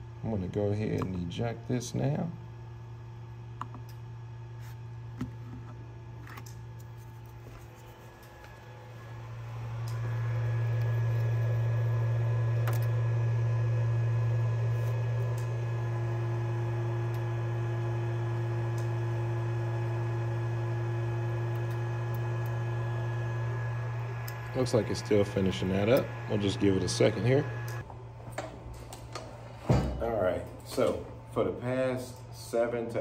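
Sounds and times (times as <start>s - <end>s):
printer humming: 7.0s - 28.4s.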